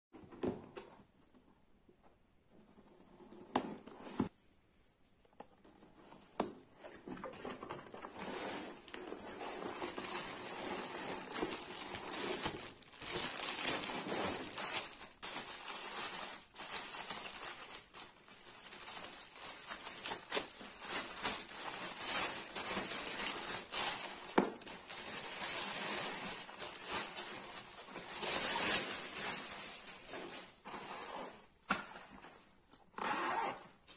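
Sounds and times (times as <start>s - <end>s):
plastic wrapping crinkling: 7.2s - 30.6s.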